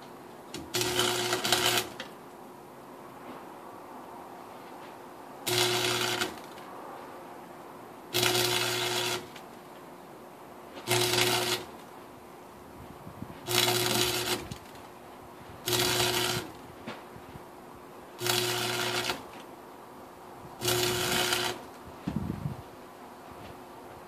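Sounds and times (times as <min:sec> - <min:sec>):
low electrical hum: 0:00.0 - 0:24.0
welding arc crackling: 0:00.5 - 0:02.1, 0:05.4 - 0:06.7, 0:08.1 - 0:09.5, 0:10.8 - 0:11.9, 0:13.4 - 0:14.8, 0:15.6 - 0:16.6, 0:18.2 - 0:19.4, 0:20.6 - 0:21.8.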